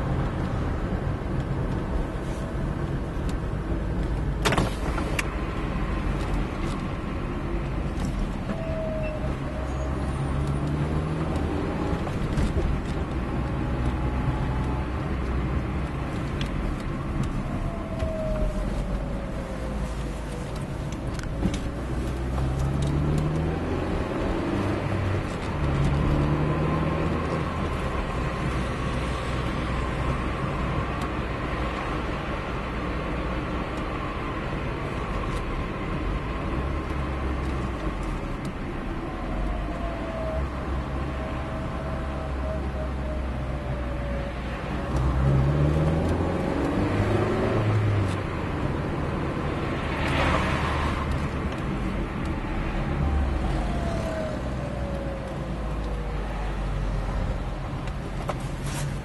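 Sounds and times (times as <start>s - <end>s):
car engine accelerating: 9.2s - 30.7s, 44.6s - 59.0s.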